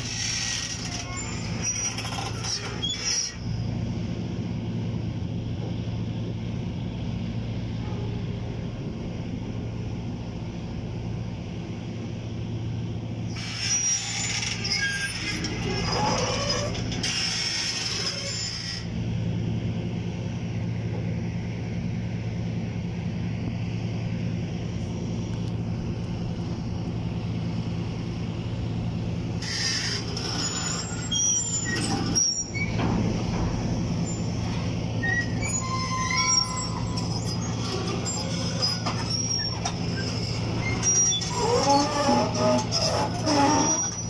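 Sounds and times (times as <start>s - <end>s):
short high squeaks: 0.0s - 3.6s, 13.3s - 18.9s, 29.4s - 32.9s, 33.6s - 44.0s
excavator diesel engine running: 0.0s - 44.0s.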